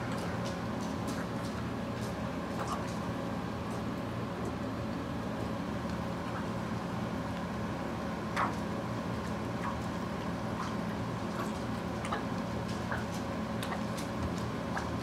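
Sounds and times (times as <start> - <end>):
steady low hum: 0.0 - 15.0
dog lapping water from bowl: 10.5 - 14.2.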